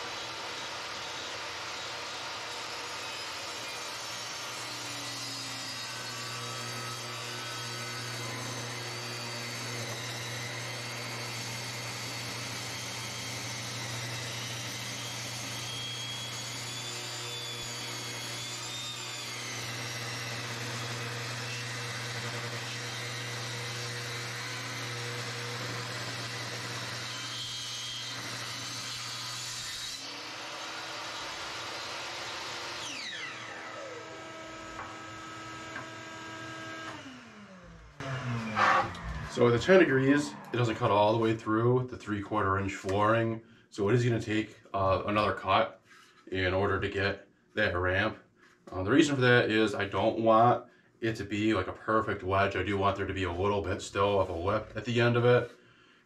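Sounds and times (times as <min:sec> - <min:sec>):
table saw cutting wood: 0:00.0 - 0:43.2.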